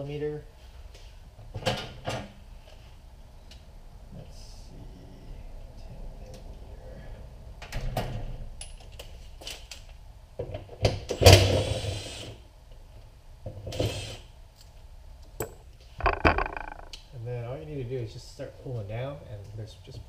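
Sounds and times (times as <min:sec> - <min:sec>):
loud metal rattle: 0:15.4 - 0:17.0.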